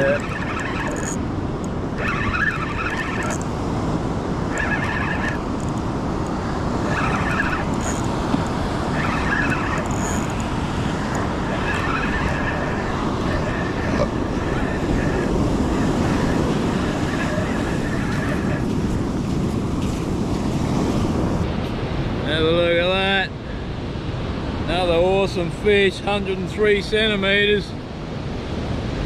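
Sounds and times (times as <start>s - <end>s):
fishing reel whirring: 0.0s - 3.7s, 4.4s - 18.6s
wind on microphone: 0.0s - 22.3s
surf rumbling: 0.0s - 29.0s.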